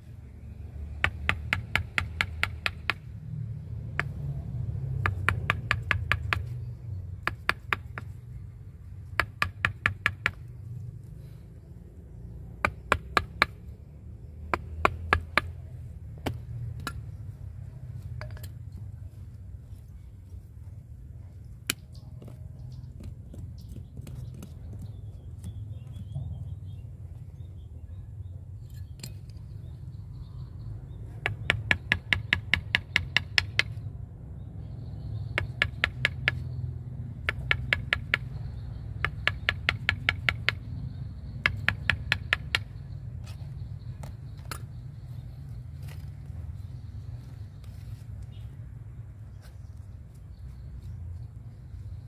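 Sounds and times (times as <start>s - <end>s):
mallet striking chisel into wood: 1.0s - 3.0s, 5.0s - 6.5s, 7.2s - 8.1s, 9.2s - 10.4s, 14.5s - 15.5s, 31.2s - 33.8s, 35.4s - 36.4s, 37.2s - 38.4s, 39.0s - 40.6s, 41.4s - 42.7s.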